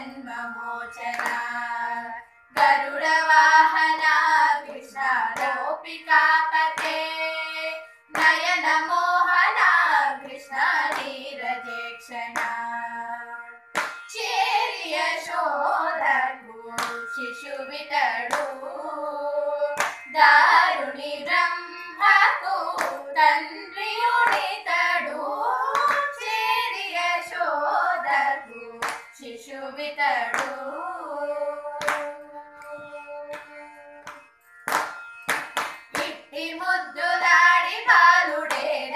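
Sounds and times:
girls singing together: 0.0 - 38.9
hand claps and lap slaps: 1.0 - 1.7, 2.5 - 3.0, 4.0 - 5.7, 6.6 - 7.4, 8.1 - 9.8, 10.8 - 11.7, 12.3 - 12.7, 13.7 - 14.4, 16.8 - 17.2, 18.3 - 18.6, 19.8 - 20.3, 22.0 - 24.6, 25.7 - 26.3, 28.8 - 29.3, 30.2 - 30.7, 31.8 - 36.3, 37.8 - 38.9.

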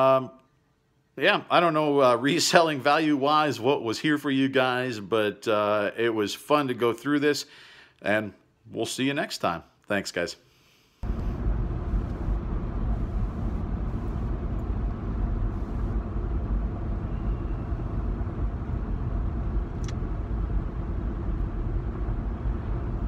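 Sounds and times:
road noise: 11.0 - 23.0
vehicle engine rumble: 11.0 - 23.0
sharp click: 19.8 - 20.0.

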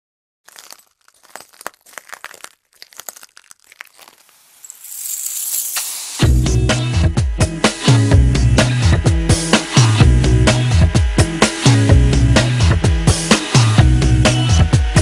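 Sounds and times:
crackling crinkling clicks: 0.5 - 4.8
music with heavy bass and drums: 6.2 - 15.0.

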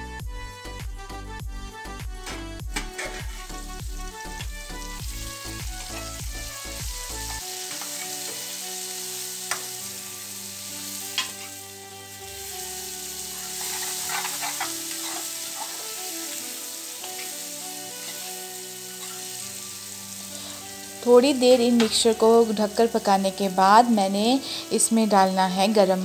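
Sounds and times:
vegetables sizzling in oil: 2.6 - 26.0
metal spoon clicking on pan: 9.5 - 9.7.

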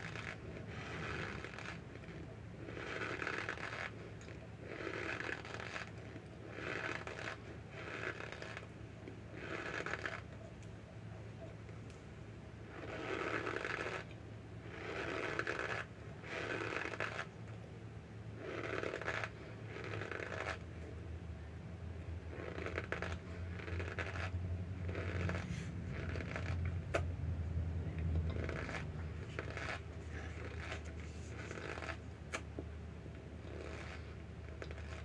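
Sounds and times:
steady low hum: 0.0 - 35.0.

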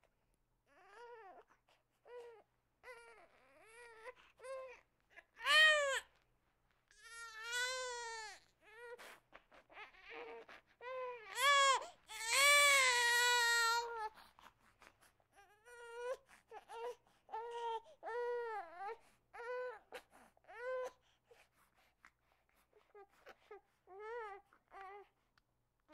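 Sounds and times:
baby crying: 7.0 - 9.0, 9.7 - 14.1.

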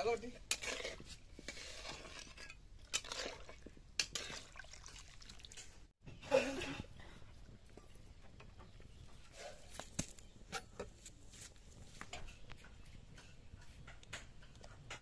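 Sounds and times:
metal spatula scraping iron pan: 0.0 - 4.5.

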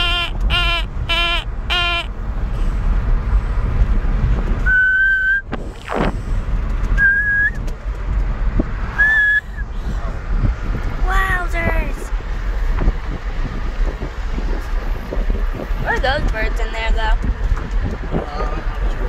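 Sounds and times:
road and engine rumble: 0.0 - 19.0
person whistling: 4.6 - 5.4, 7.0 - 7.6, 9.0 - 9.6.

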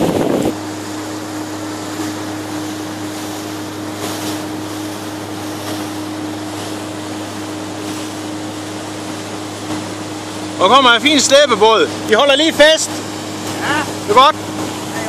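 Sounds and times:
boat engine droning: 0.0 - 15.0
wind and water rushing: 0.0 - 15.0.

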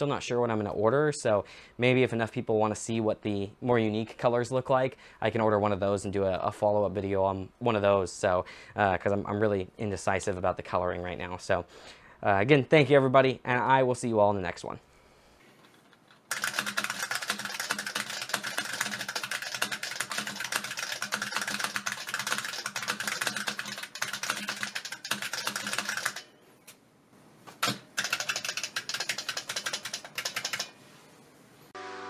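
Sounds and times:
fast typing on clicky keyboard: 16.3 - 26.3, 27.6 - 30.8.

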